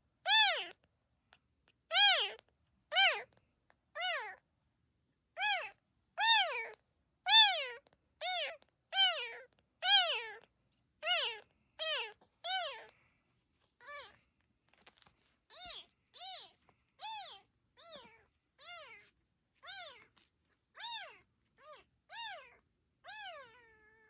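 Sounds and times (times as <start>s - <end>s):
kitten mewing: 0.3s - 0.8s, 1.9s - 3.3s, 5.4s - 10.4s, 11.0s - 12.9s, 20.8s - 24.0s.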